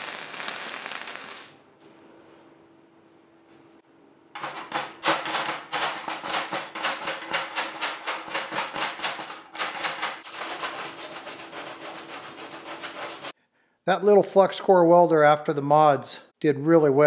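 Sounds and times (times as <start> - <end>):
wire brush scrubbing metal: 4.4 - 13.4.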